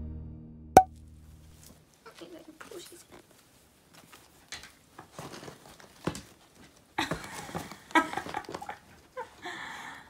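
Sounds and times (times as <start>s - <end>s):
plush costume rustling: 1.6s - 9.4s.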